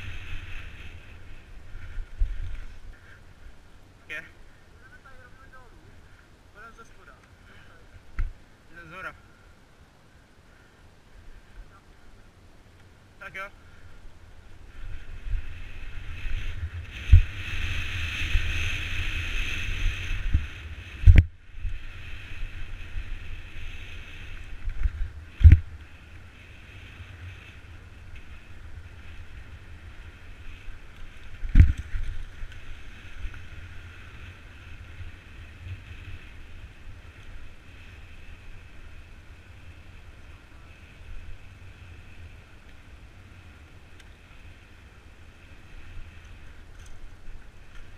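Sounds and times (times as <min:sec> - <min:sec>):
wind buffeting microphone: 0:00.0 - 0:03.5, 0:14.1 - 0:39.5
bicycle tyre rumble: 0:00.0 - 0:47.9.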